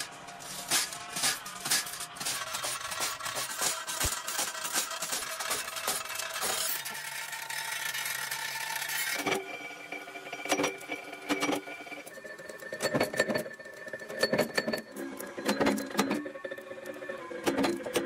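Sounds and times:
metal rods rattling and clanking: 0:00.0 - 0:09.4
steady machinery hum: 0:00.0 - 0:18.0.

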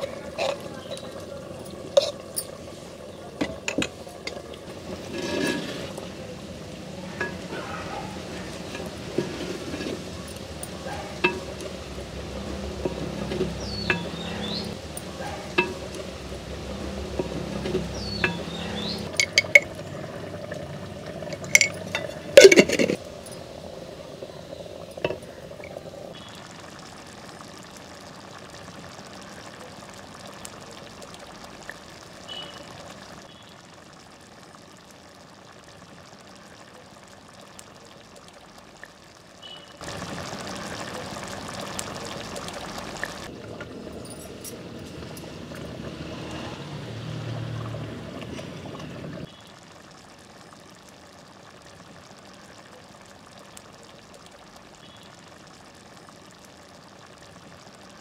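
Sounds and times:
liquid pouring and stirring: 0:00.0 - 0:06.4, 0:07.1 - 0:23.5, 0:24.6 - 0:25.9
metal spoon clinking on pot: 0:07.2 - 0:07.6, 0:09.8 - 0:11.8, 0:12.8 - 0:16.0, 0:17.2 - 0:18.5, 0:19.1 - 0:19.8, 0:21.3 - 0:23.4.

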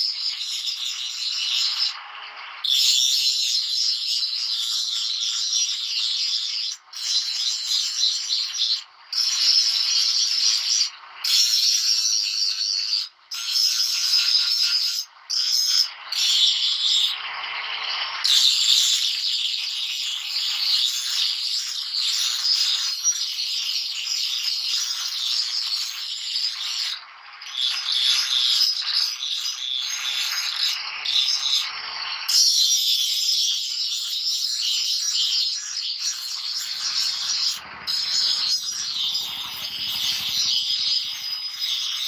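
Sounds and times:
angle grinder grinding steel: 0:32.6 - 0:42.0.

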